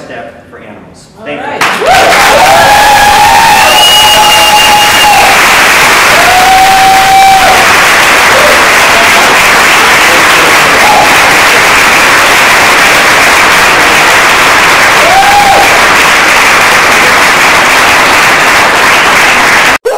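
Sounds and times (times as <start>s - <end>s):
audience applauding and cheering: 1.6s - 19.9s
whoops: 1.8s - 9.4s, 10.7s - 11.4s, 14.9s - 15.8s.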